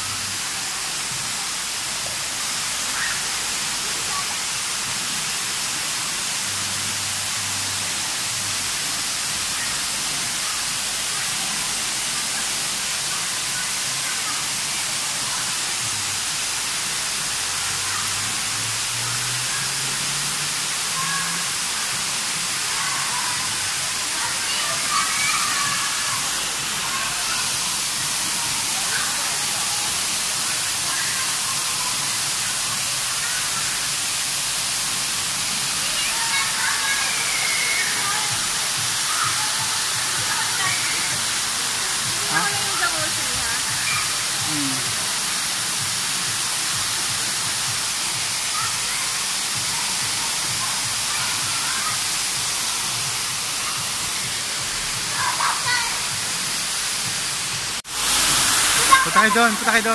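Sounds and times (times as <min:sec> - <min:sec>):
water jets churning pool water: 0:00.0 - 0:59.9.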